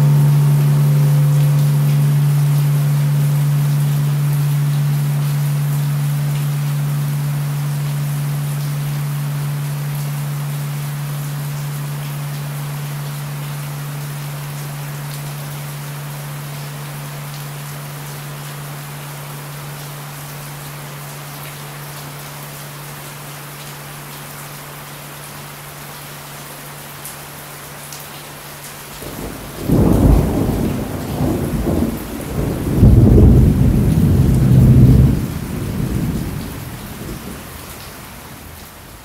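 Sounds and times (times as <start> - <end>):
low steady hum: 0.0 - 17.2
steady rain falling: 0.0 - 39.0
thunder rumbling: 29.0 - 37.5.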